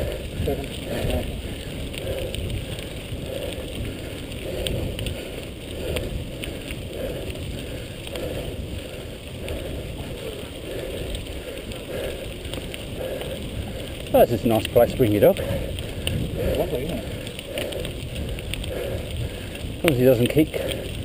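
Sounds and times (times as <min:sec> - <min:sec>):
bike clicks and rattles: 0:00.0 - 0:21.0
bike tyres rumbling on gravel: 0:00.0 - 0:21.0.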